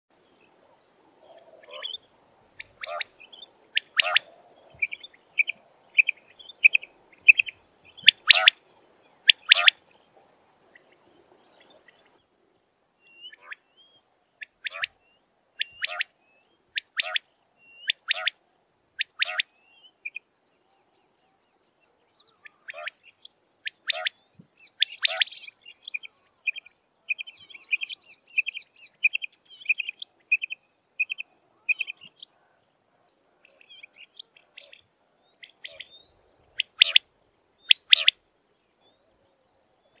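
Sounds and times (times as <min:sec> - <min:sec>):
quail calling: 0:01.2 - 0:02.0, 0:02.6 - 0:08.6, 0:09.2 - 0:09.8, 0:13.2 - 0:13.6, 0:14.4 - 0:15.0, 0:15.6 - 0:16.1, 0:16.8 - 0:18.4, 0:19.0 - 0:20.2, 0:22.3 - 0:32.6, 0:33.4 - 0:38.2.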